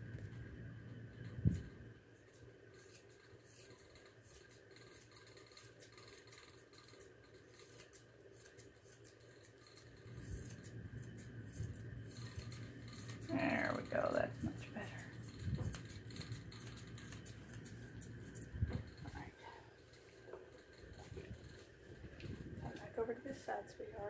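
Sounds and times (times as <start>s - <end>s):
shears snipping fur: 2.2s - 19.2s.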